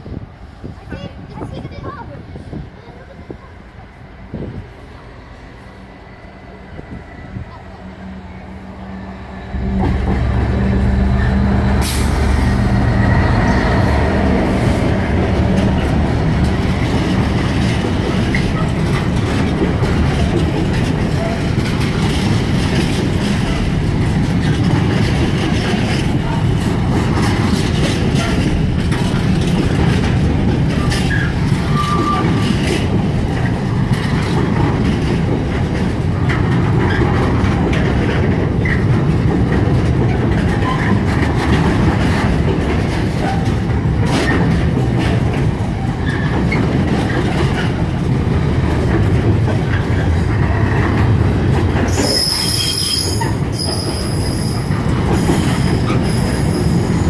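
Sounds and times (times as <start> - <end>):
diesel locomotive engine drone: 0.0 - 57.0
train wheels rumbling on rails: 0.0 - 57.0
wheels clicking over rail joints: 13.4 - 57.0.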